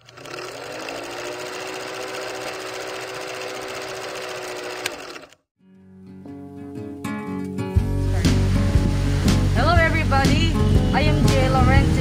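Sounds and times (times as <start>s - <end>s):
film projector whirring clatter: 0.0s - 5.4s.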